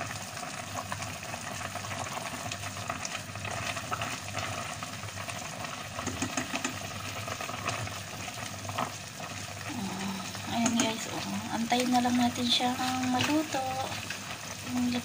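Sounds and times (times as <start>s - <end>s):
broth bubbling in a pot: 0.0s - 15.0s
tongs stirring noodles: 6.0s - 15.0s.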